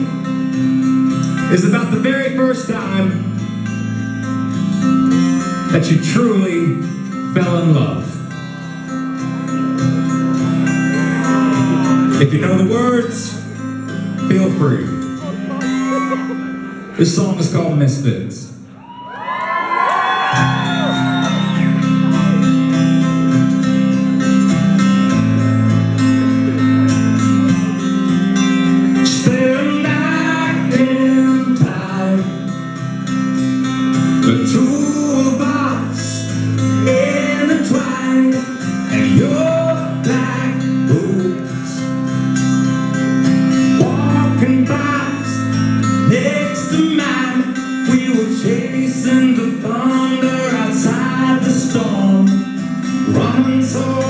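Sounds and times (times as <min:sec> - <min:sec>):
acoustic guitars playing chords: 0:00.0 - 0:54.0
man singing: 0:01.3 - 0:03.4, 0:05.7 - 0:08.4, 0:10.9 - 0:13.6, 0:28.8 - 0:32.6, 0:34.1 - 0:42.0, 0:43.7 - 0:54.0.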